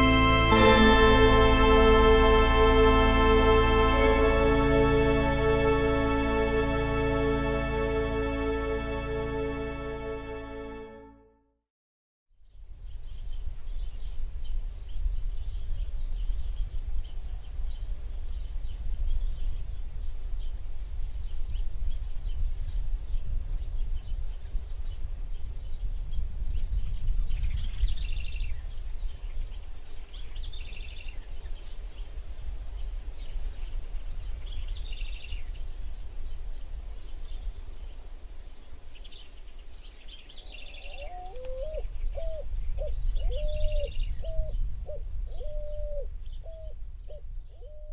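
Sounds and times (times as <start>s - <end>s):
wind rumble on microphone: 12.5s - 47.9s.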